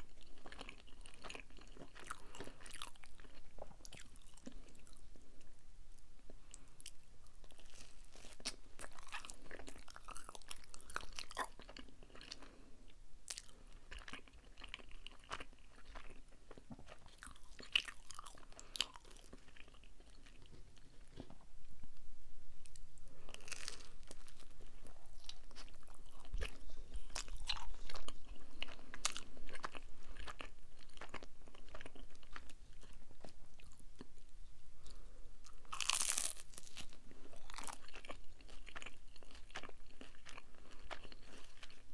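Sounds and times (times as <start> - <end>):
chewing and biting pizza: 0.0 - 5.0, 7.5 - 12.6, 13.3 - 21.2, 23.2 - 33.8, 34.8 - 41.9
crunchy crust crackles: 6.6 - 12.7, 22.6 - 33.8, 34.8 - 41.9.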